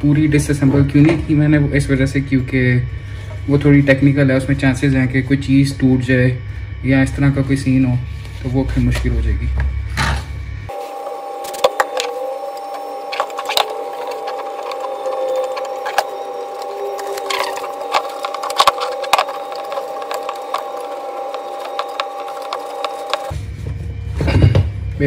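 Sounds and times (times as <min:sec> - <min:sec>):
paper scraping inside headlight: 0:10.8 - 0:23.4.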